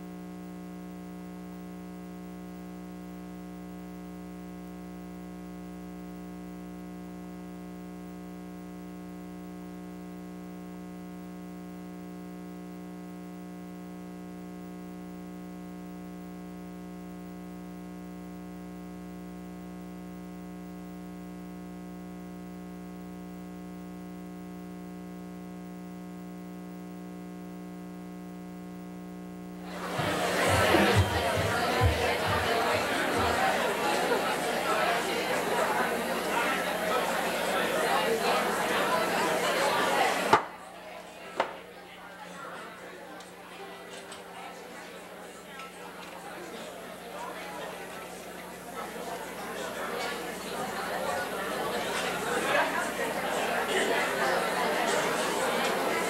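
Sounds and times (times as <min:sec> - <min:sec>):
electrical mains hum: 0:00.0 - 0:56.0
audience noise: 0:29.6 - 0:56.0
voices: 0:29.7 - 0:56.0.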